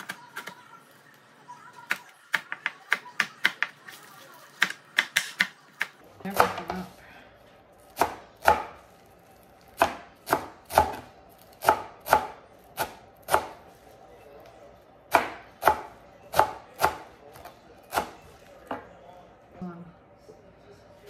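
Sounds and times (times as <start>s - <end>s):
knife chopping on plastic board: 1.9s - 3.8s, 4.6s - 6.9s, 8.0s - 8.8s, 9.8s - 13.6s, 15.1s - 18.8s.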